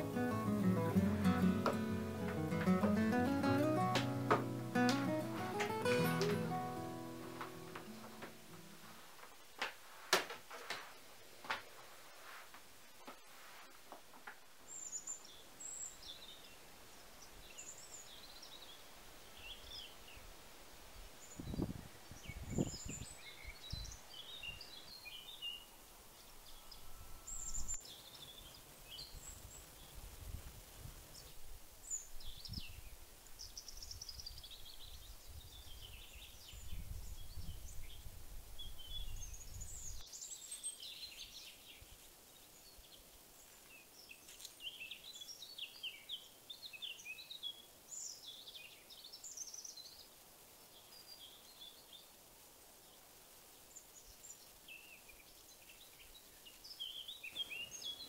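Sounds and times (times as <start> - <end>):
small birds chirping and trilling: 52.8 - 58.0.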